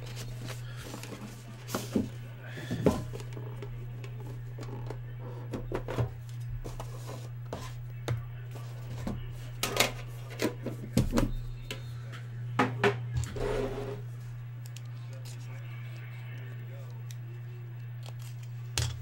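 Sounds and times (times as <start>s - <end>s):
steady low hum: 0.0s - 19.0s
card clicks and scrapes: 18.0s - 19.0s.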